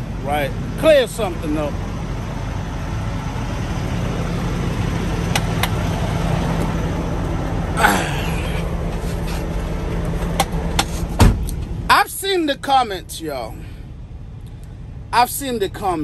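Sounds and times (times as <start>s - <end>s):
truck diesel engine idling: 0.0s - 16.0s.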